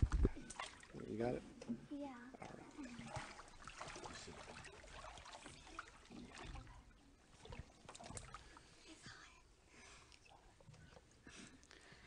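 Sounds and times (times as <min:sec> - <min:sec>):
water sloshing and trickling: 0:00.0 - 0:09.1.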